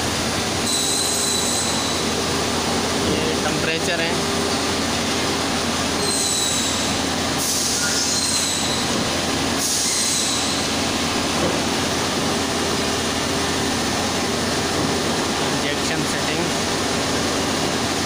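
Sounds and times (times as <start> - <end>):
factory machinery hum and hiss: 0.0 - 18.0.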